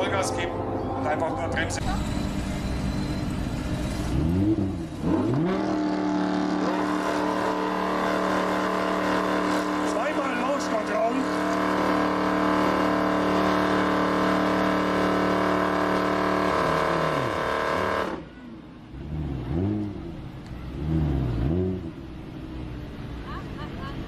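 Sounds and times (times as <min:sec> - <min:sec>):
engine revving: 0:00.0 - 0:18.3, 0:18.9 - 0:22.4
car engine steady note: 0:00.0 - 0:24.0.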